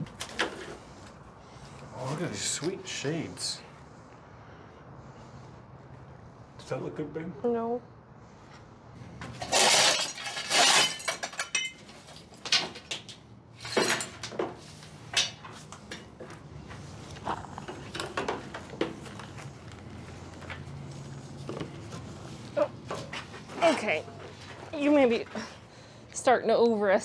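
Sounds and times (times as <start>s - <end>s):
shovel scraping rubble: 9.4s - 12.2s.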